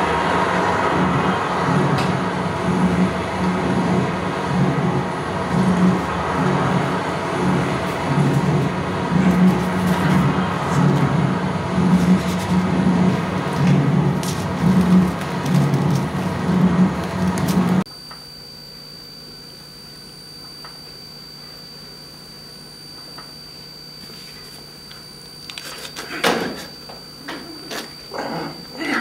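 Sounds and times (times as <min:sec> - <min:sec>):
loud dense rumbling: 0:00.0 - 0:17.8
thin high whine: 0:00.0 - 0:29.0.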